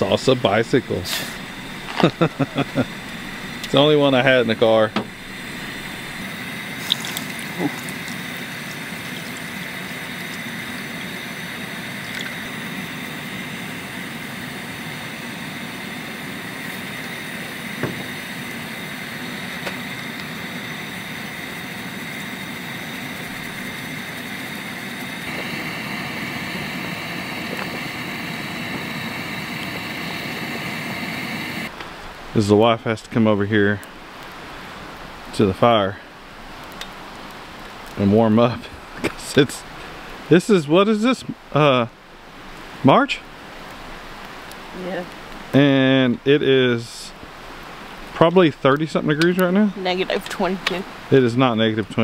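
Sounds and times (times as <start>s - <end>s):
broth bubbling at a boil: 0.0s - 31.8s
gas stove burner hissing: 0.0s - 31.8s, 44.5s - 52.0s.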